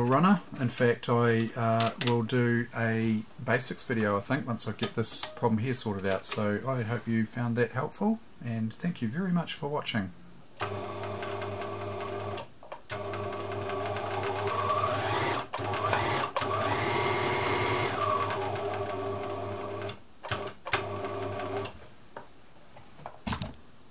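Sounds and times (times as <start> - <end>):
sewing machine motor running: 13.0 - 19.9.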